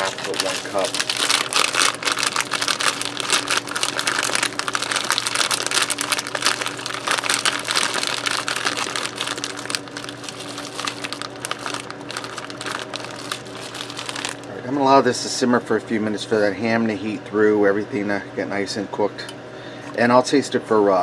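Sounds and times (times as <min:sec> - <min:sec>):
plastic bag crinkling: 0:00.0 - 0:14.5.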